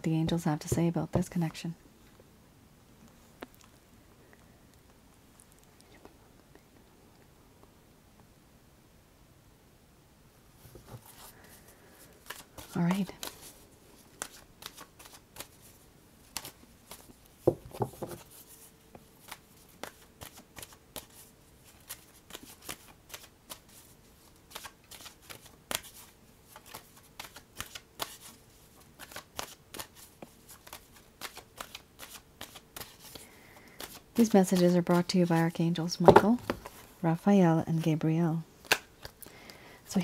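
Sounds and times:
cards being shuffled: 0:12.0 - 0:36.9, 0:38.6 - 0:39.2.

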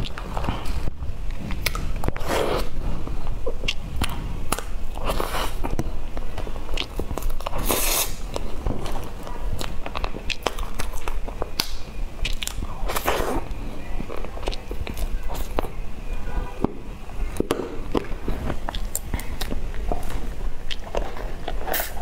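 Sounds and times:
close-up chewing sounds: 0:00.0 - 0:15.8, 0:17.3 - 0:22.0.

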